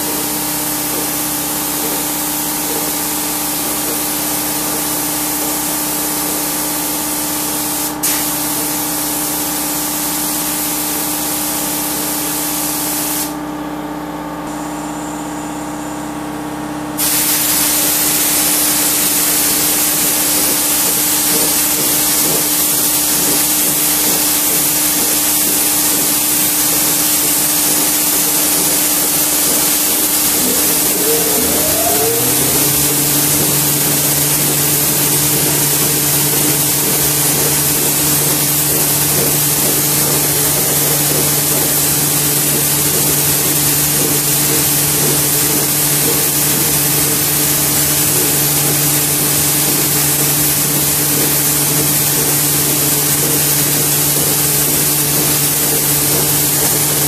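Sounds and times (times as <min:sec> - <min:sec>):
spray gun hissing: 0:00.0 - 0:13.4, 0:17.0 - 0:57.0
machine hum: 0:24.5 - 0:57.0.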